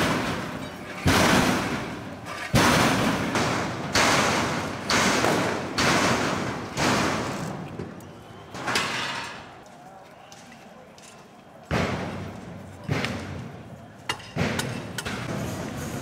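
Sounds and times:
loud echoing bangs: 0.0s - 7.6s.

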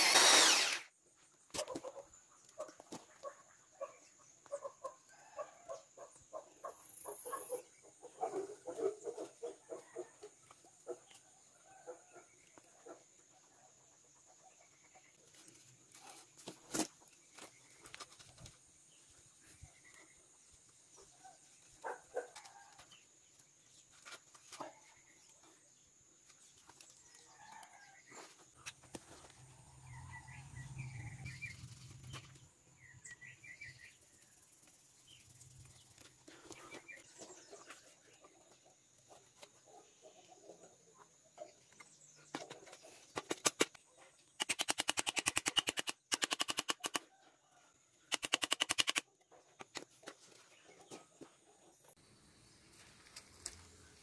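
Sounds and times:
chickens clucking: 7.5s - 11.2s.

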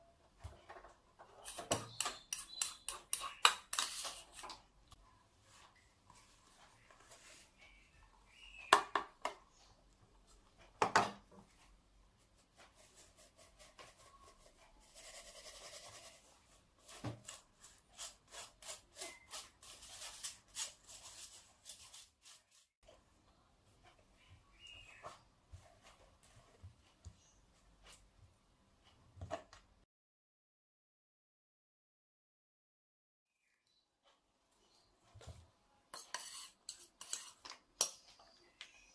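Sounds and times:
spoon clicking and scraping mesh: 1.4s - 4.5s, 36.0s - 38.0s.

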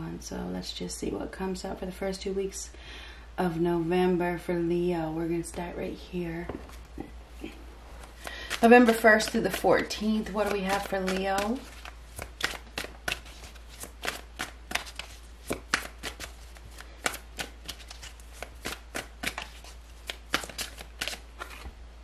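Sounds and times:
cards being shuffled: 6.6s - 21.8s.

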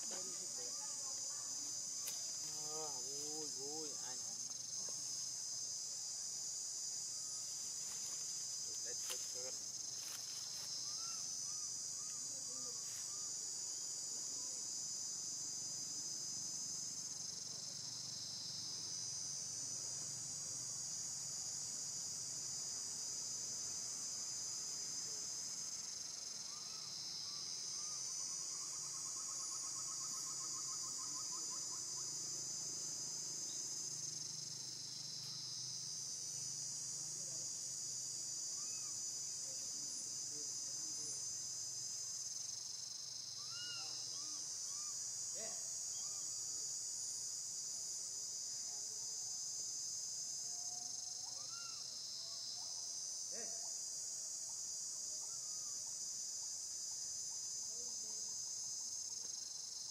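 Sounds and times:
high-pitched insect chorus: 0.0s - 59.9s
faint chirps and trill: 42.4s - 46.7s.

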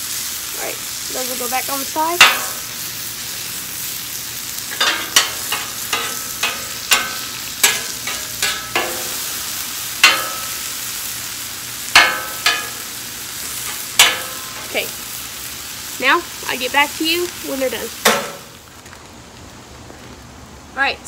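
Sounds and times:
onions sizzling on a griddle: 0.0s - 21.0s
metal spatula scraping and clanking: 4.7s - 10.7s, 12.0s - 12.9s, 13.6s - 14.8s.

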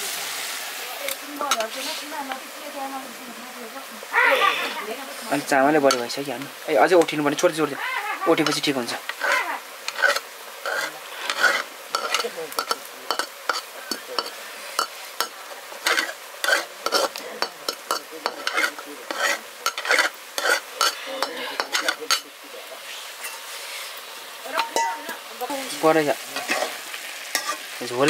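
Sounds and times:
steady sizzle: 0.0s - 28.0s
spoon scraping cooking pan: 1.1s - 2.4s, 5.3s - 7.2s, 8.4s - 22.5s, 23.1s - 27.8s.

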